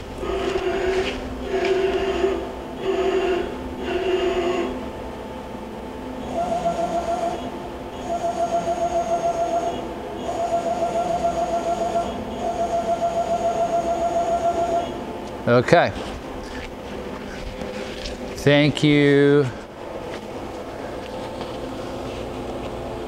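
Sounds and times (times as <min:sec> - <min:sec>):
lathe servo motors whining: 0:00.0 - 0:05.0, 0:06.1 - 0:15.1.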